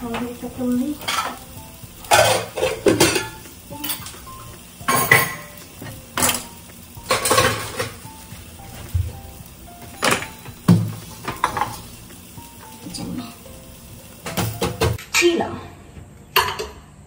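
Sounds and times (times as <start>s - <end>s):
steel bowls and utensils clattering: 1.0s - 1.5s, 2.1s - 4.2s, 4.9s - 5.6s, 7.1s - 8.0s, 11.2s - 11.8s.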